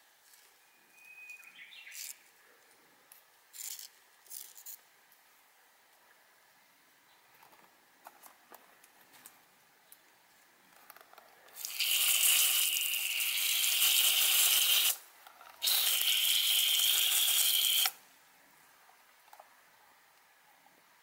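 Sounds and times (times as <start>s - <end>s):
hose nozzle spraying water: 11.6s - 15.0s, 15.6s - 18.0s.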